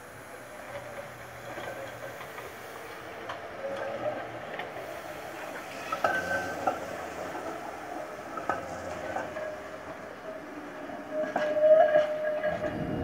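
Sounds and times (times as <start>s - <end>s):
tram clanks: 0.0s - 13.0s
tram wheels clicking on rails: 0.0s - 13.0s
high squeal: 11.0s - 13.0s.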